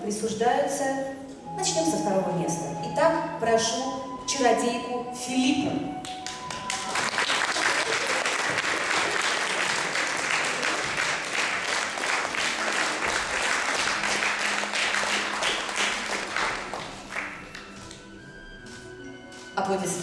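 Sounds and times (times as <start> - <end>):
audience applauding: 6.0 - 18.0.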